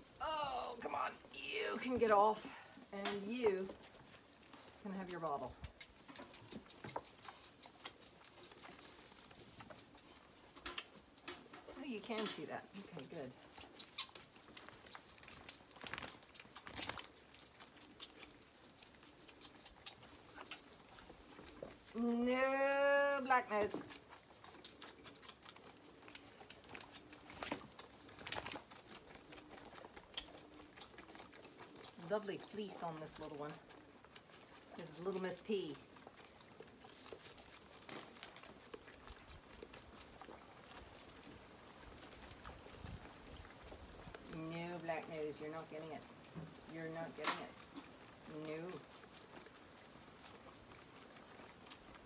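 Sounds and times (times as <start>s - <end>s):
lambs rustling in straw: 12.5s - 52.0s.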